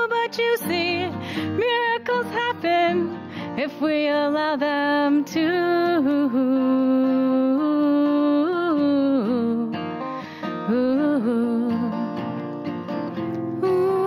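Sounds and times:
acoustic guitar: 0.0 - 14.0
woman singing long notes: 10.7 - 12.1, 13.6 - 14.0.

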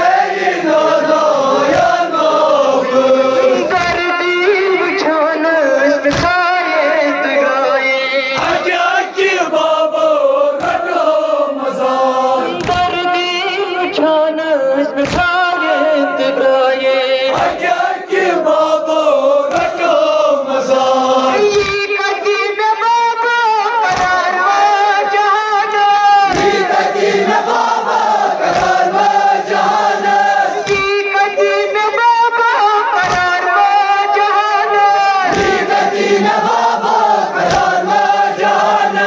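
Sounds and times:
choir singing: 0.0 - 3.8, 8.4 - 12.8, 17.3 - 21.5, 26.3 - 30.8, 35.3 - 39.0
male voices chanting a lament: 0.0 - 39.0.

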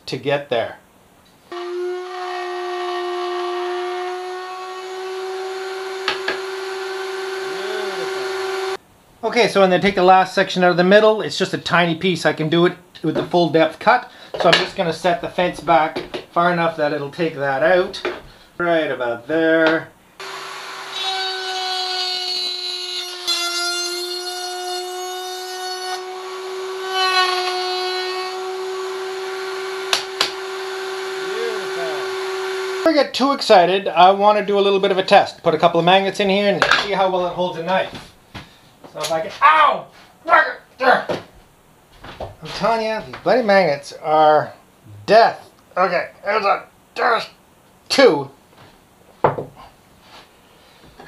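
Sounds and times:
router cutting wood: 1.5 - 8.8, 20.2 - 32.9
knock: 49.2 - 49.6.

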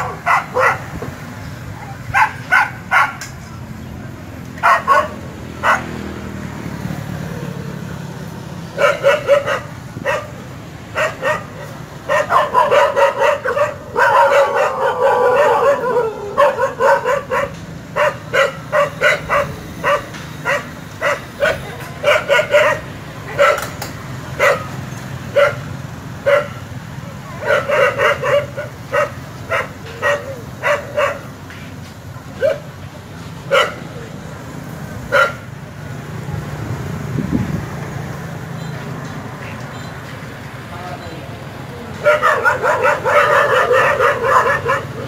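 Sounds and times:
dogs yelping: 0.0 - 1.1, 1.8 - 3.3, 4.6 - 6.1, 8.7 - 26.7, 27.3 - 31.4, 32.4 - 32.7, 33.4 - 34.0, 35.1 - 35.5, 42.0 - 45.0
dogs barking: 0.0 - 1.2, 1.8 - 3.4, 4.5 - 6.3, 8.7 - 26.7, 27.3 - 31.4, 32.3 - 32.8, 33.4 - 34.1, 35.0 - 35.6, 42.0 - 45.0.

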